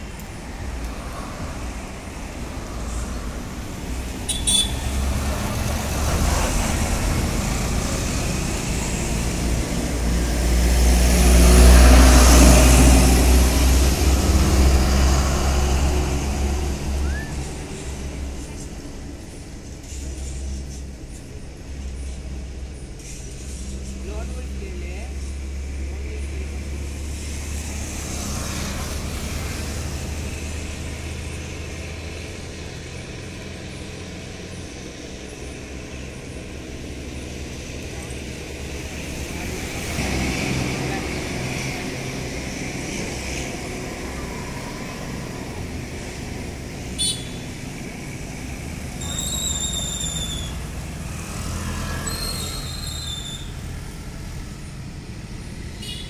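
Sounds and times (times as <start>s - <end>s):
vehicle engine rumbling: 0.0s - 56.0s
brief high squeak: 49.0s - 50.6s, 52.0s - 53.5s
high thin squeal: 49.0s - 50.7s, 51.9s - 53.6s.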